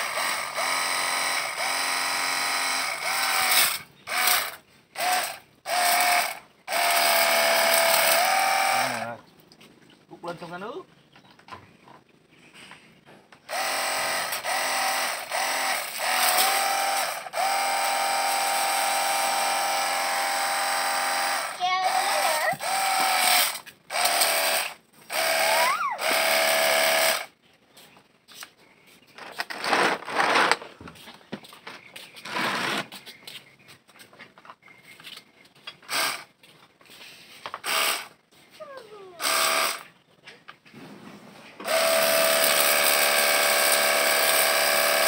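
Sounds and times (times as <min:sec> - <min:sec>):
pressure washer motor whining: 0:41.6 - 0:45.0.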